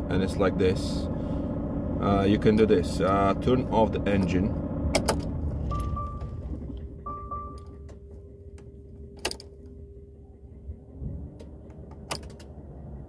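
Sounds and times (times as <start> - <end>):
low steady hum: 0.0 - 13.0
faint steady tone: 5.7 - 13.0.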